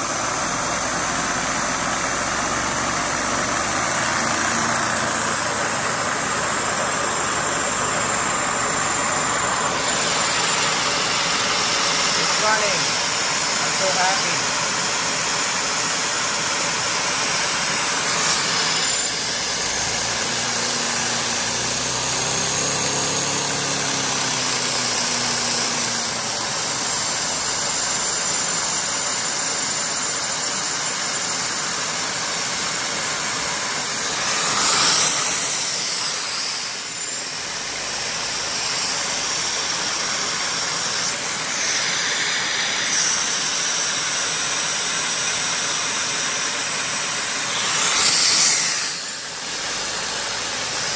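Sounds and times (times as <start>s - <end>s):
spinning engine hum: 0.0s - 13.6s
vacuum air hiss: 0.0s - 21.4s, 31.4s - 50.9s.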